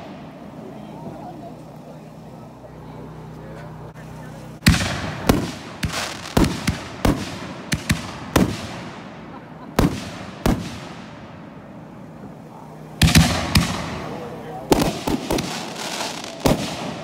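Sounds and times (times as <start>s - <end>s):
fireworks bangs: 0.0s - 1.8s, 4.6s - 17.0s.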